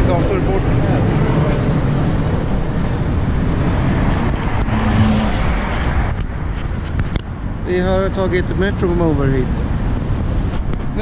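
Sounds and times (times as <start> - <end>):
cars on city street: 0.0 - 11.0.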